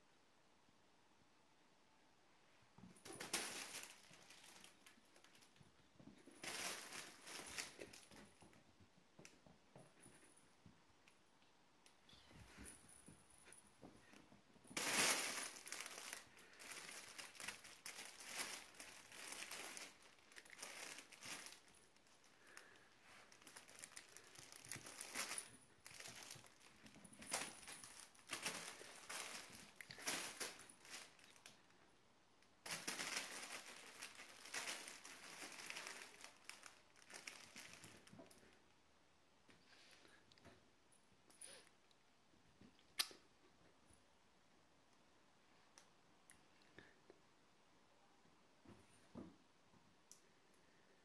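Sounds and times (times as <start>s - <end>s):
fabric tunnel rustling and crackling: 14.7s - 31.5s, 32.6s - 38.4s.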